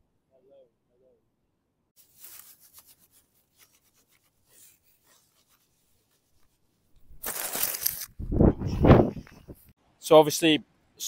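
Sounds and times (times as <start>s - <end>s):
grass rubbing on microphone: 2.0s - 9.7s.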